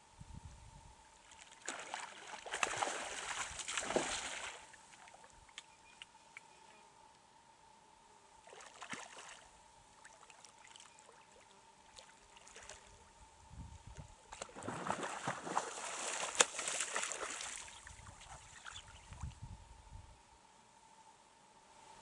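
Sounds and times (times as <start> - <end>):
water splashing and sloshing: 1.2 - 5.3, 8.4 - 13.0, 14.3 - 19.2.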